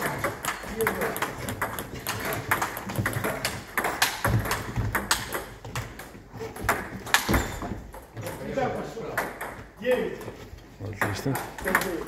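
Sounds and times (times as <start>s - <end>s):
ping pong ball clicking: 0.0s - 7.3s.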